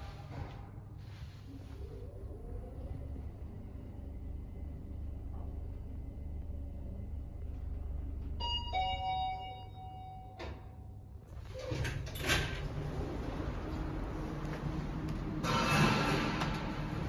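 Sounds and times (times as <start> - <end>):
elevator running hum: 0.0 - 17.0
two-note elevator chime: 8.4 - 10.4
elevator doors sliding open: 10.2 - 17.0.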